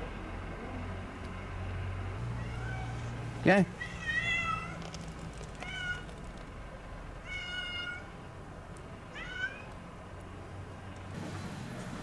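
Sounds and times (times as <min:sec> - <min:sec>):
cat meowing: 0:02.4 - 0:03.0, 0:03.8 - 0:04.8, 0:07.2 - 0:08.1, 0:09.1 - 0:09.7.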